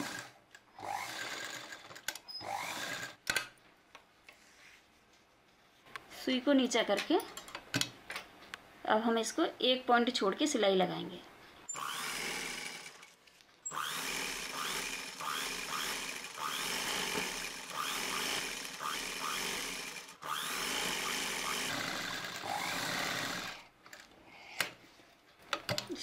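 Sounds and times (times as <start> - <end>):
sewing machine running: 0.0 - 3.2, 11.8 - 13.1, 13.7 - 23.6.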